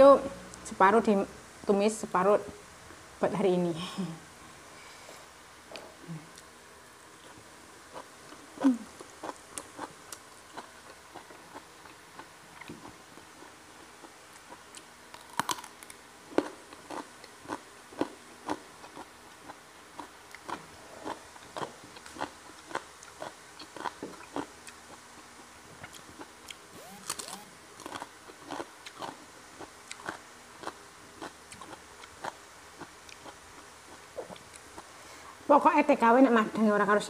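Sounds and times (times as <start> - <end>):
steady chewing: 7.2 - 35.0
crisp bites: 15.1 - 16.0.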